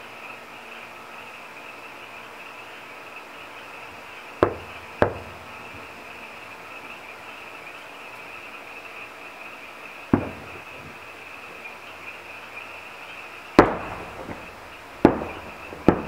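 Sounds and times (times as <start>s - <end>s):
fireworks bangs: 3.9s - 6.4s, 10.1s - 11.7s, 13.5s - 16.0s.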